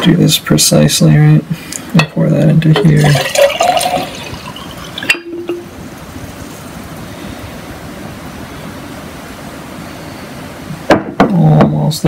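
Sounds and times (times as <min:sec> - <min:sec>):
liquid trickling into a jar: 0:02.7 - 0:05.7
glass clink: 0:02.8 - 0:05.7.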